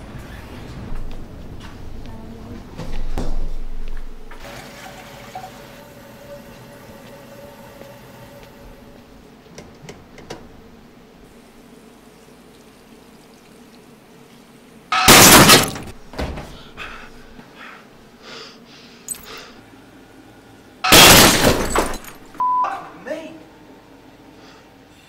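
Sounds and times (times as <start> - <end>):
glass bits falling: 15.0 - 15.9, 20.9 - 22.3
mirror glass smashing: 15.0 - 15.9, 20.9 - 22.3.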